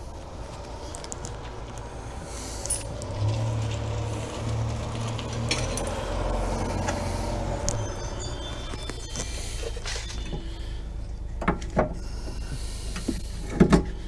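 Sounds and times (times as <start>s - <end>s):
metallic clicks and clinks: 5.3s - 6.2s.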